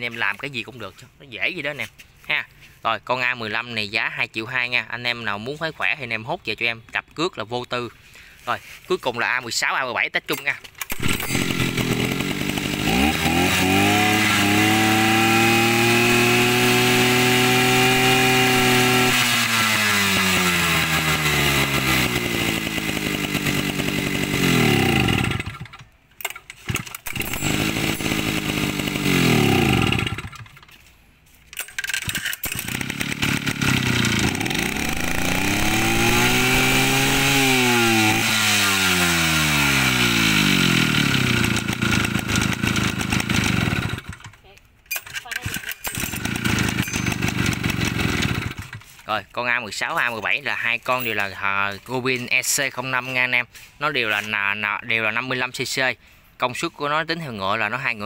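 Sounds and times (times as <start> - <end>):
small pump engine revving: 10.9 - 25.9, 26.6 - 30.6, 31.6 - 44.3, 45.4 - 48.8.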